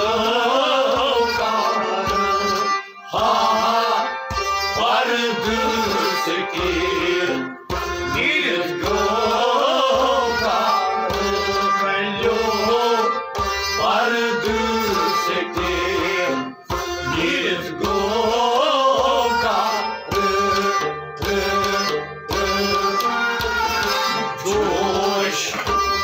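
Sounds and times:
man singing: 0.0 - 25.8
harmonium chords: 0.0 - 26.0
rubab: 19.0 - 26.0.

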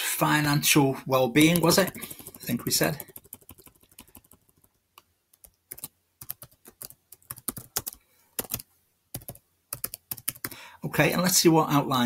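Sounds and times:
keyboard typing: 1.4 - 10.6.

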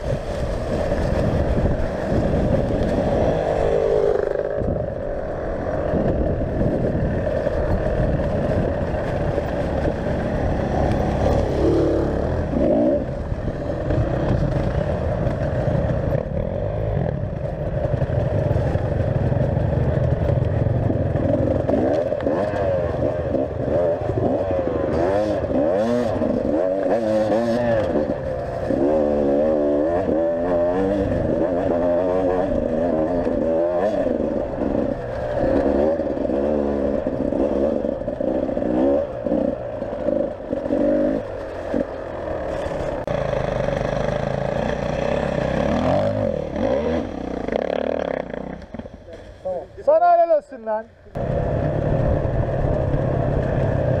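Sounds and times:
motorcycle engine revving: 0.0 - 49.6, 51.1 - 54.0.

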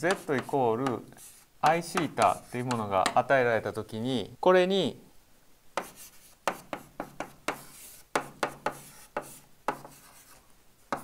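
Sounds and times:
chalk tapping and scratching: 0.0 - 3.3, 5.8 - 11.0.

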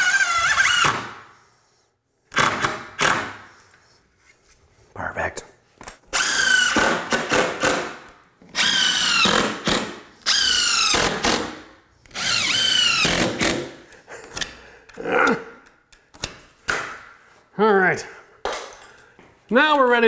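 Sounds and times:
impact driver whining: 6.1 - 13.8.

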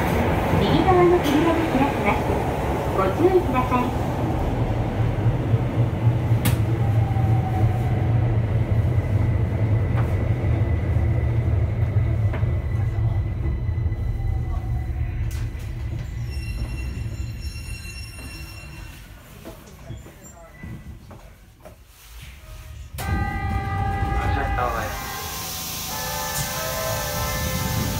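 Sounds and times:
wheel and rail rumble: 0.0 - 21.4, 22.0 - 27.9
train inverter whine: 23.0 - 27.9.

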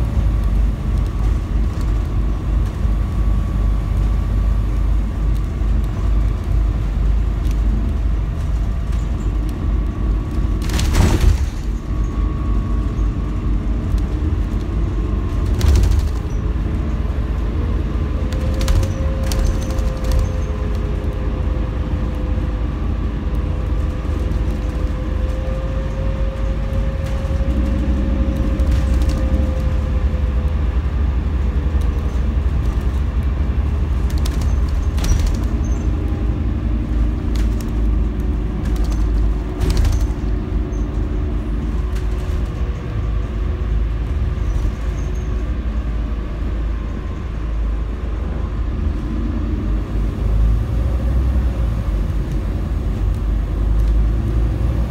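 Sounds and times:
steady whine: 0.0 - 44.5
diesel bus engine rumble: 0.0 - 54.9
road noise: 0.0 - 54.9
bodywork knocks and rattles: 13.6 - 16.9, 23.8 - 29.9, 31.7 - 43.3.

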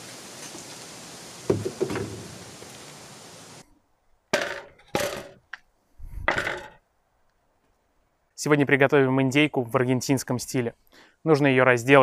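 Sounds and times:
knocks: 1.5 - 2.3, 6.2 - 6.8.

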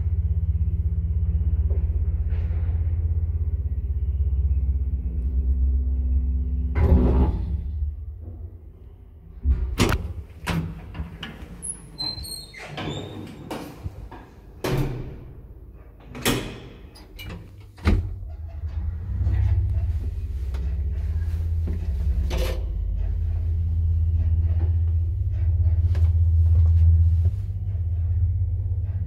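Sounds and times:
elevator car rumbling to a stop: 0.0 - 14.9, 15.8 - 29.0
elevator doors clicking and knocking: 9.4 - 26.9.

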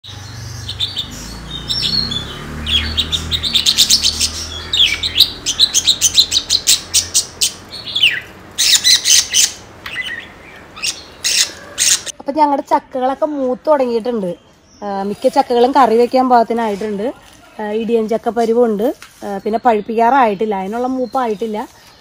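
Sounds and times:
birds chirping: 0.0 - 22.0
downward-sliding bird calls: 0.1 - 12.1.

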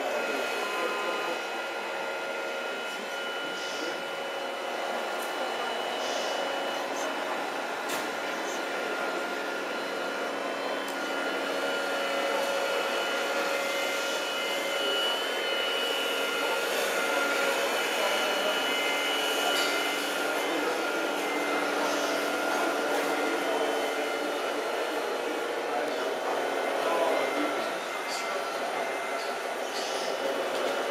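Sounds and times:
electric motor whine: 0.0 - 30.9.

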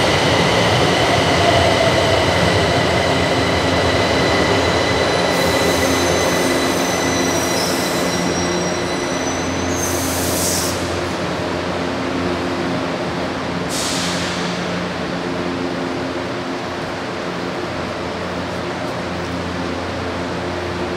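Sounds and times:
train running rumble: 0.0 - 20.9
high brake squeal: 5.2 - 10.9
air hiss: 13.7 - 14.5.

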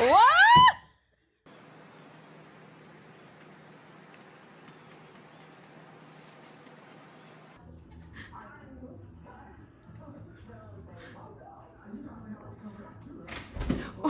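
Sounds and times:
faint outdoor hum: 1.4 - 13.3
high whine of insects chirring: 1.5 - 7.6.

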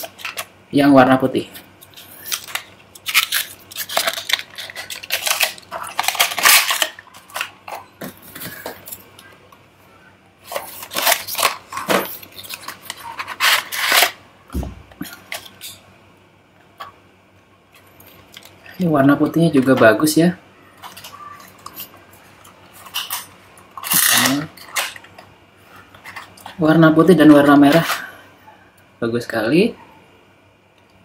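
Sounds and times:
cardboard and plastic crackling: 1.8 - 9.3, 10.4 - 15.8.

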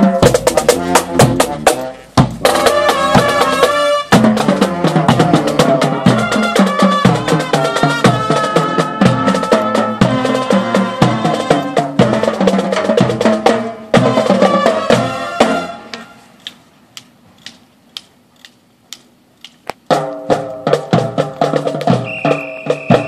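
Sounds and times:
drumline beat: 0.0 - 16.0, 19.8 - 23.0
marching band brass: 0.0 - 16.5, 19.9 - 23.0
sharp percussion clicks: 16.4 - 23.0.

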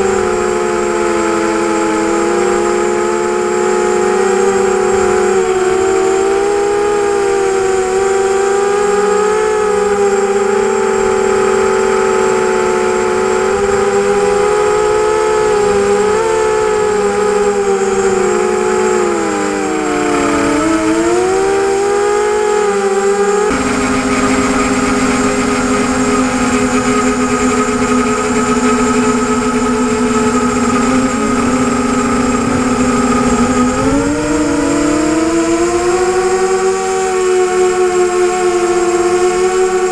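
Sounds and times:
quadcopter motors whining: 0.0 - 39.9.

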